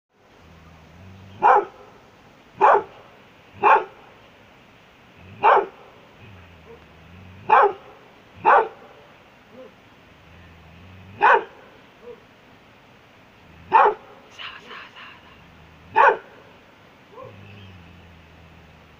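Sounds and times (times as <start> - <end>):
dog barking: 1.4 - 2.0, 2.6 - 4.1, 5.3 - 5.9, 7.4 - 9.8, 11.1 - 12.3, 13.6 - 14.3, 15.9 - 17.7.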